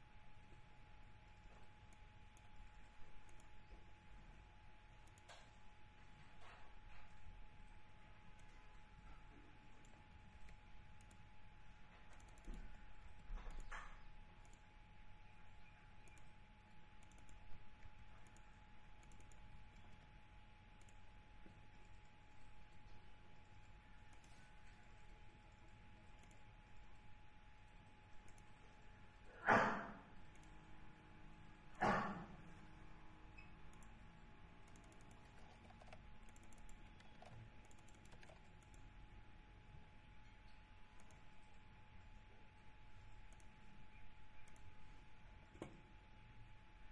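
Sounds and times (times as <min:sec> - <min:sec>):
faint keyboard typing: 0:00.0 - 0:29.5, 0:30.1 - 0:46.9
faint steady whine: 0:00.0 - 0:46.9
keyboard keystrokes: 0:12.1 - 0:14.7, 0:17.0 - 0:20.0, 0:34.6 - 0:38.9.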